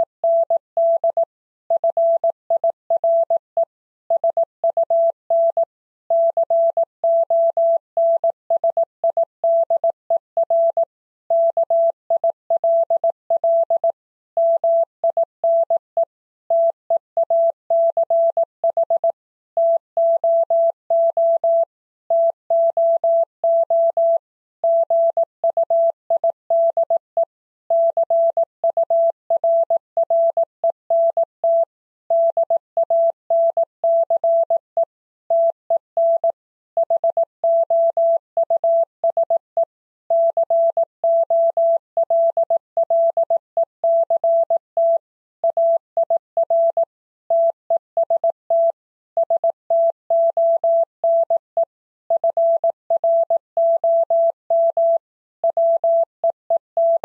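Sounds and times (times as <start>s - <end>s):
morse code beeps: 16.5s - 57.0s.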